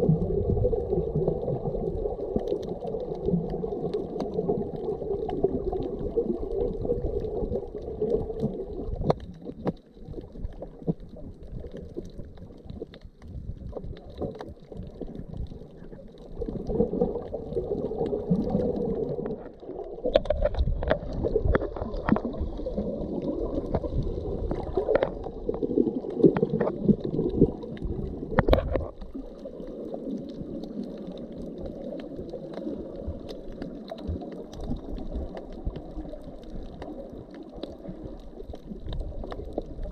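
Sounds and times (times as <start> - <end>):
underwater water rumbling: 0.0 - 39.9
underwater clicks and knocks: 1.3 - 29.4.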